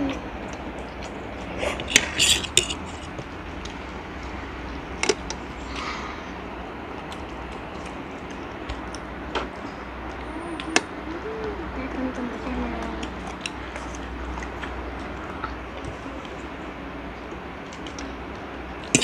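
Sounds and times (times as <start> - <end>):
steady low hum: 0.0 - 19.0
mouth smacks while eating: 0.1 - 3.8.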